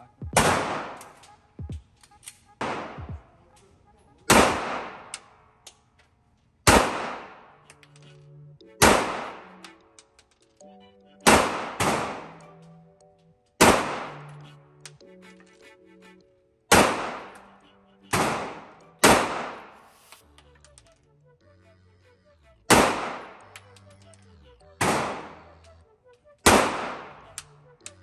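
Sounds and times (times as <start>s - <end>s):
pistol shots echoing indoors: 0.4s - 1.3s, 1.9s - 3.0s, 4.3s - 5.5s, 6.6s - 7.9s, 13.6s - 14.2s, 16.7s - 17.4s, 18.1s - 19.7s, 22.7s - 23.4s, 26.5s - 27.1s
faint clicks: 0.9s - 2.6s, 7.6s - 11.2s, 20.1s - 21.4s, 23.1s - 28.0s.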